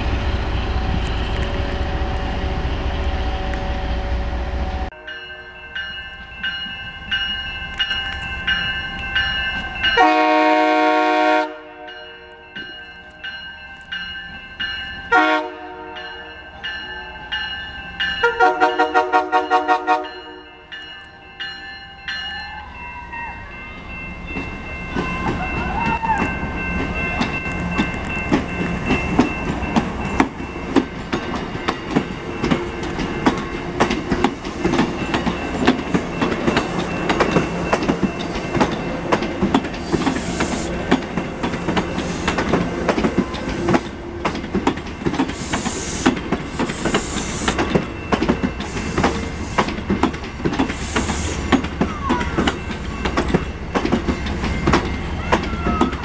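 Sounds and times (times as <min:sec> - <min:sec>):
train wheels clicking over rail joints: 0:24.2 - 0:56.0.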